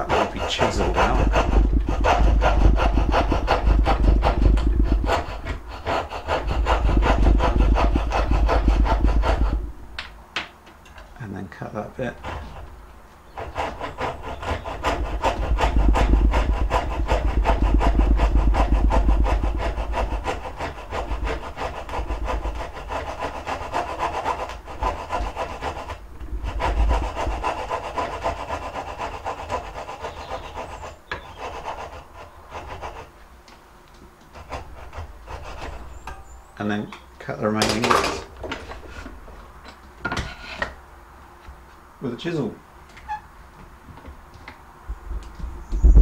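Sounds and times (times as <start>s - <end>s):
saw cutting wooden board: 0.0s - 9.8s, 11.6s - 33.2s, 34.2s - 36.6s.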